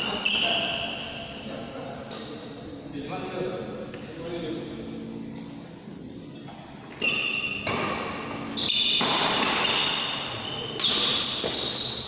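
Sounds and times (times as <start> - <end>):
shoes squeaking on court floor: 0.0 - 1.2, 6.9 - 12.0
racket hitting shuttlecock: 7.6 - 8.2, 8.8 - 10.0, 10.8 - 11.8.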